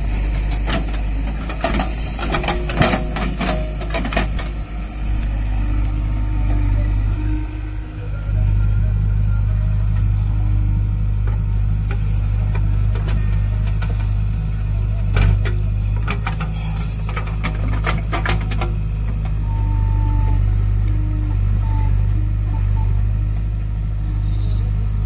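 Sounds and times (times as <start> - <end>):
diesel engine running: 0.0 - 25.0
sharp metal clanks and knocks: 0.4 - 4.6.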